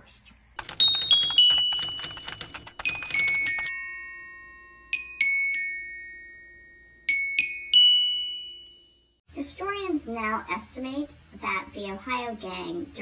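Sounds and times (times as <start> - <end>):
typewriter keys clacking: 0.6 - 3.8
glockenspiel-like chimes: 2.8 - 9.2.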